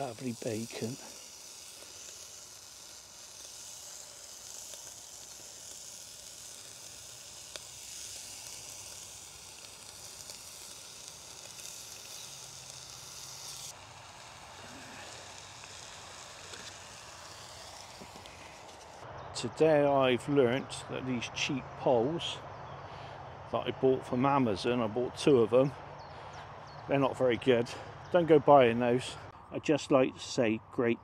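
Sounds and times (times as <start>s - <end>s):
bacon sizzling in a pan: 0.0s - 19.0s.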